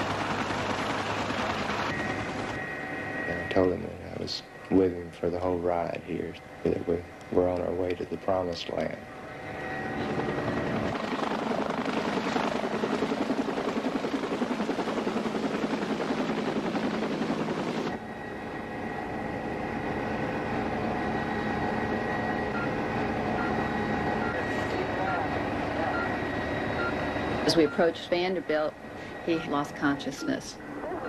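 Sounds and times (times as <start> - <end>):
helicopter rotor and turbine noise: 0.0 - 31.0
monitor beeps: 22.5 - 28.5, 29.3 - 31.0.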